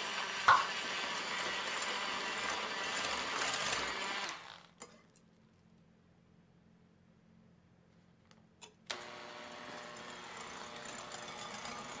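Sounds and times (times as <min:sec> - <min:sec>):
electric hand mixer whirring: 0:00.0 - 0:04.8, 0:08.9 - 0:12.0.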